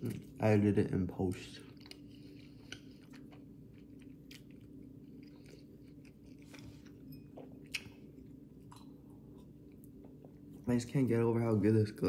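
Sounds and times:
steady low hum: 0:00.0 - 0:12.0
person chewing: 0:01.4 - 0:10.6.

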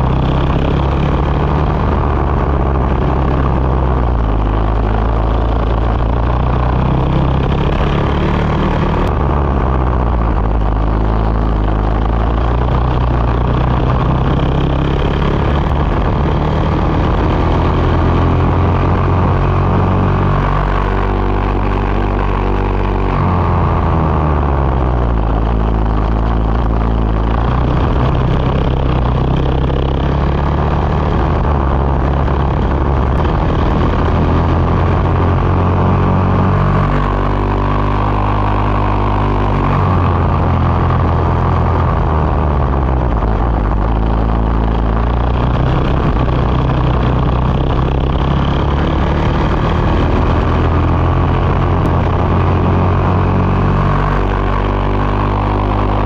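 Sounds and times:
racing kart engine: 0:00.0 - 0:56.0.

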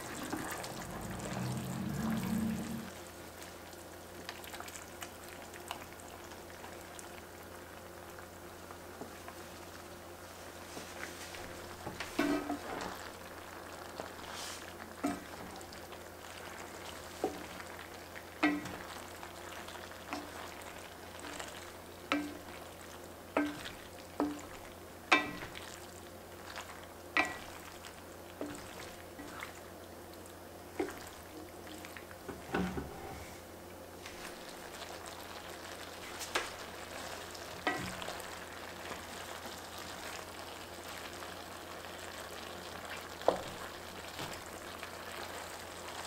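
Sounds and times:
faint sizzle: 0:00.0 - 0:46.0
wooden spatula knocking on pan: 0:18.4 - 0:18.8, 0:22.1 - 0:22.5, 0:23.4 - 0:24.5, 0:25.1 - 0:25.6.

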